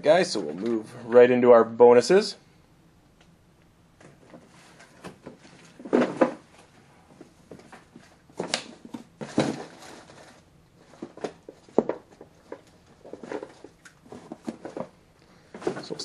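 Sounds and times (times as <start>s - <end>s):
cards and packaging handled: 7.2s - 16.0s.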